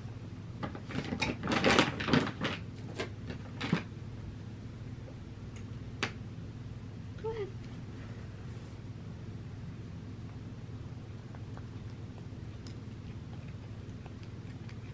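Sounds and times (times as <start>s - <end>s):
cat crunching dry kibble: 0.8s - 3.9s, 11.2s - 14.9s.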